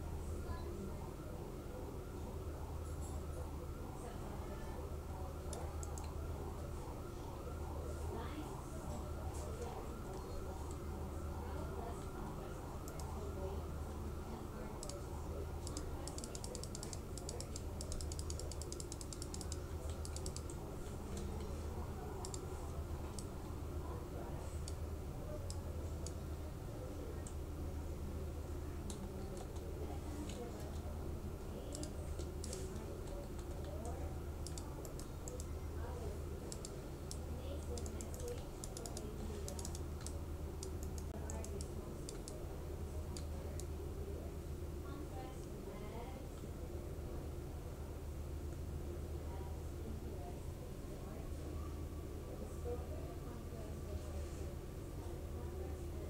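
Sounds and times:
steady low hum: 0.0s - 56.0s
keyboard and mouse clicking: 14.8s - 15.0s, 15.6s - 21.5s, 22.2s - 22.4s, 31.7s - 35.5s, 36.5s - 42.4s.

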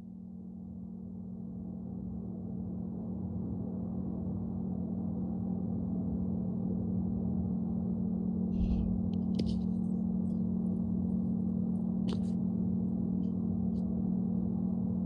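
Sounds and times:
low drone: 8.6s - 9.2s.

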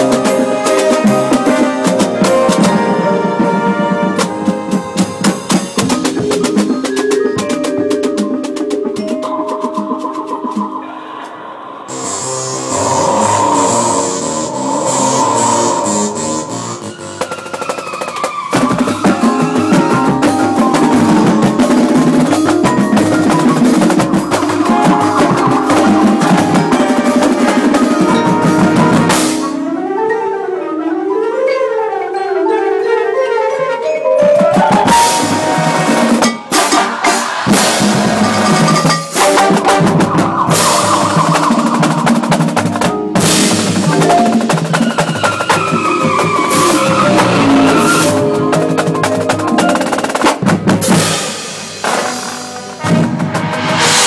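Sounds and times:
marching band playing: 0.0s - 10.8s, 11.9s - 30.0s, 34.2s - 54.0s
mallet percussion runs: 0.0s - 11.5s, 12.5s - 30.0s, 31.2s - 53.0s
drums: 0.0s - 29.9s, 34.2s - 54.0s
marimbas: 0.0s - 54.0s.

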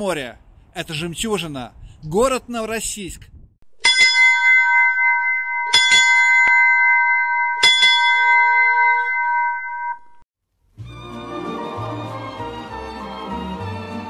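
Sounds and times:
bell ringing: 3.8s - 10.2s.

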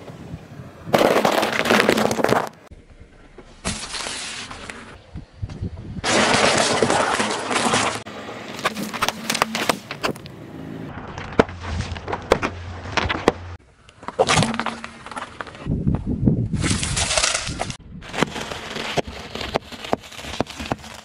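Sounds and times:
tyre crushing objects: 0.9s - 2.7s, 6.0s - 10.2s, 11.0s - 15.7s, 16.6s - 21.0s
sharp cracks and pops: 16.6s - 21.0s.

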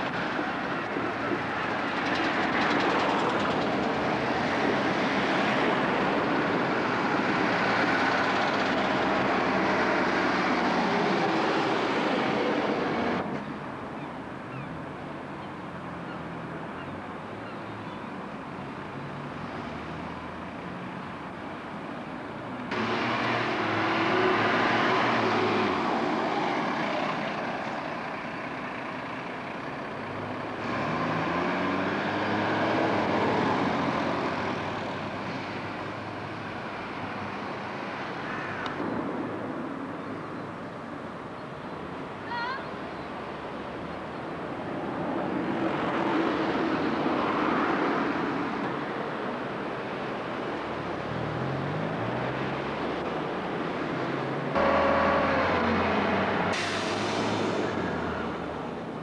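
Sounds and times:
vehicle engines passing: 0.0s - 59.0s
engine accelerating: 22.7s - 27.6s, 54.1s - 58.9s.

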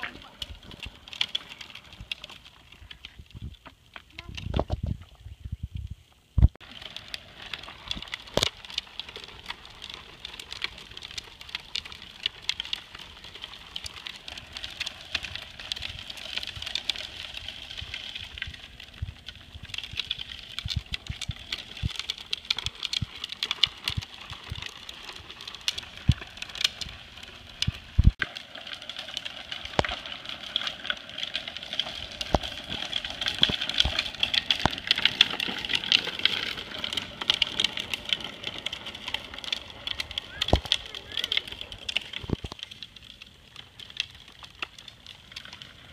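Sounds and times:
plastic wheels rolling over asphalt: 0.0s - 45.9s.

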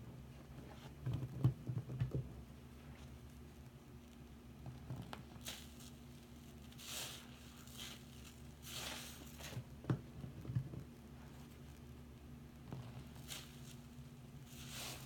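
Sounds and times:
sponge squelching in foamy water: 5.3s - 9.8s, 12.8s - 15.0s.

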